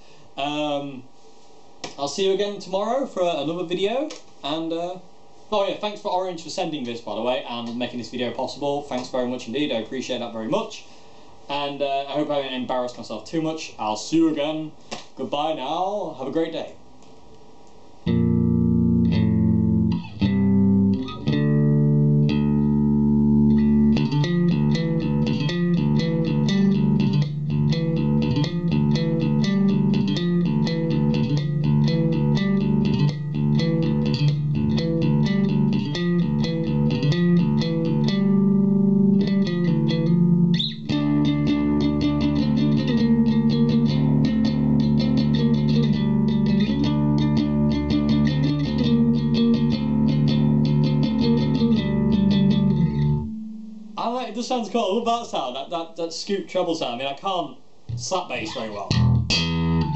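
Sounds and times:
electric bass guitar plucked: 18.1 - 54.0, 57.9 - 59.9.

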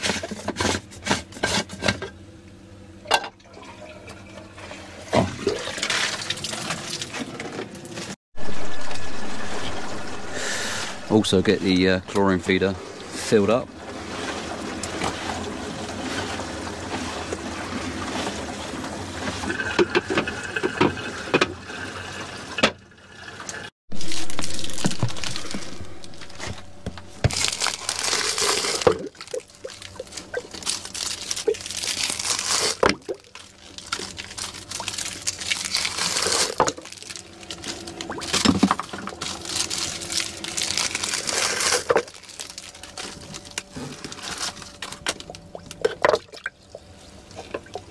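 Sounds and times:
filter pump humming: 1.8 - 22.6, 23.9 - 47.9
water pouring into plastic bucket: 23.9 - 26.4.

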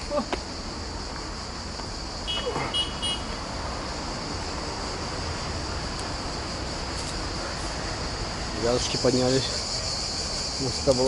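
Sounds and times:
insects buzzing: 0.0 - 11.0.

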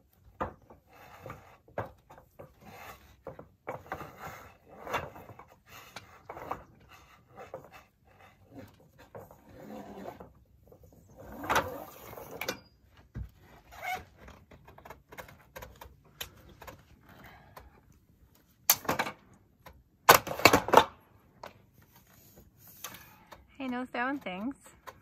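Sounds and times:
knocks and scrapes of metal pipe: 0.0 - 17.0.

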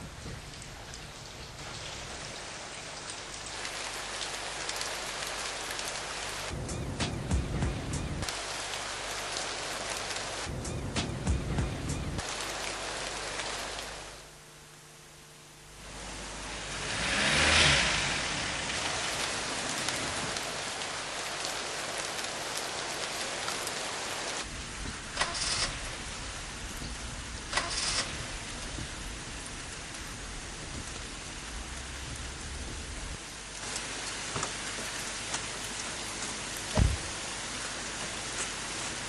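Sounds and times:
rain falling: 0.0 - 39.0.

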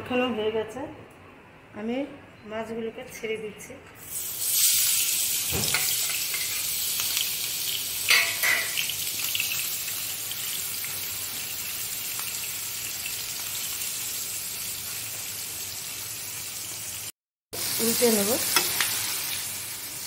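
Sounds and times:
prawns sizzling in hot oil: 4.0 - 20.0.

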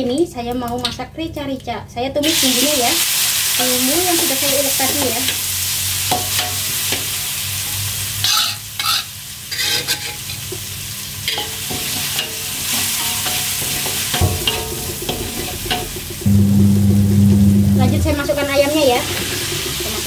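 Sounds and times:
paste sizzling in oil: 2.3 - 16.3
metal spatula scraping pan: 8.2 - 10.4
low steady hum: 14.2 - 20.0.

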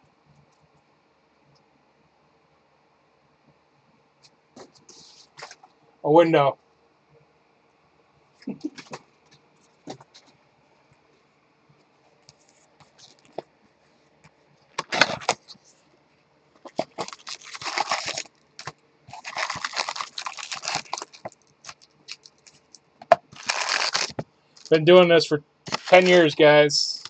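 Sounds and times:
wrappers crinkling and rustling: 14.8 - 15.6, 16.6 - 24.8, 25.7 - 26.4.

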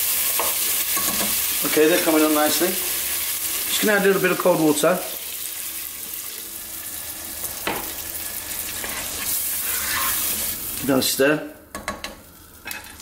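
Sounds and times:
sauce sizzling: 0.0 - 13.0.

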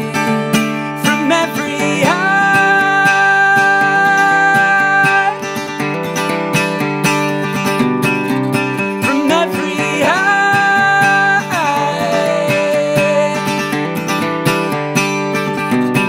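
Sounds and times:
acoustic guitar strumming: 0.0 - 16.0
man holding wordless sung note: 9.0 - 13.7.

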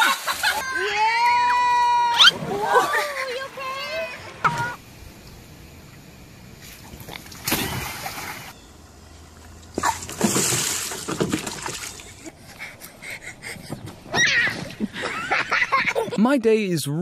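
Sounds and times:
water splashing in wading pool: 6.6 - 8.6, 9.8 - 12.3.

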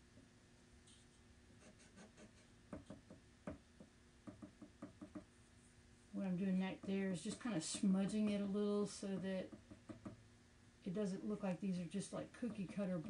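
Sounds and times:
painting tool scratching a panel: 1.6 - 3.0
soft taps and knocks: 2.7 - 5.3, 9.1 - 10.2.

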